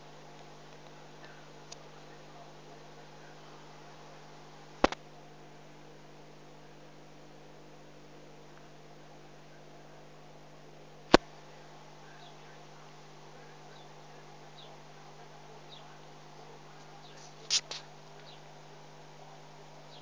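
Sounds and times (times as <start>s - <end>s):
low electrical hum with hiss: 0.0s - 20.0s
sharp click: 4.8s - 5.0s.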